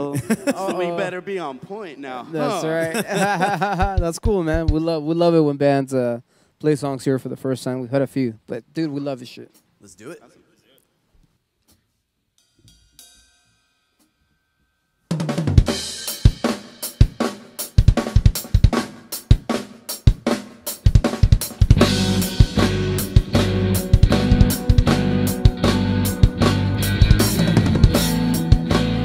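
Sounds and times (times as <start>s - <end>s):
drum kit playing: 2.6s - 5.0s, 15.1s - 29.0s
rock band playing: 15.4s - 29.0s.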